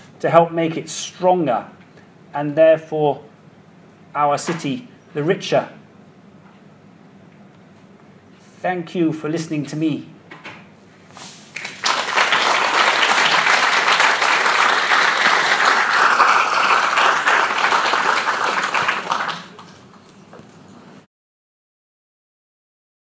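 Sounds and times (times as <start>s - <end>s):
audience applauding: 11.5s - 20.1s.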